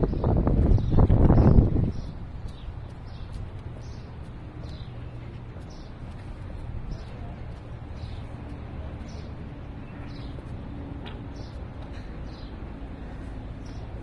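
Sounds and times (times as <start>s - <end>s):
birds chirping: 0.0s - 14.0s
steady low rumble: 0.0s - 14.0s.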